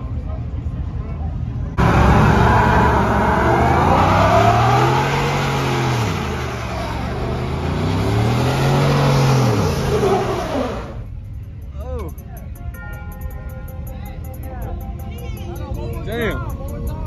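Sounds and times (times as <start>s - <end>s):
pickup engine revving: 1.8s - 11.0s.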